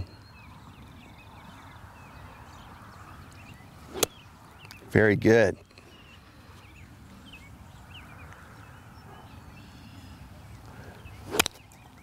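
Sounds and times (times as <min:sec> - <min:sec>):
faint bird chirps: 0:00.0 - 0:04.9
golf club striking ball: 0:03.9 - 0:04.2, 0:11.3 - 0:11.6.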